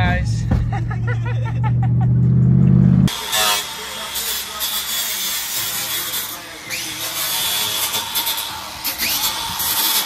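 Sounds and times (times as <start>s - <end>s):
electric grinder cutting metal: 3.1s - 10.0s.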